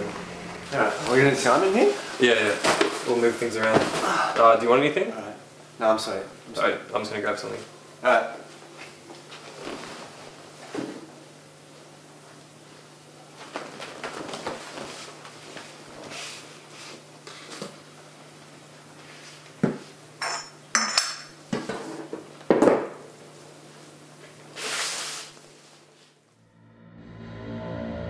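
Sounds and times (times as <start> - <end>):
dishes and cutlery clinking: 20.2 - 21.8.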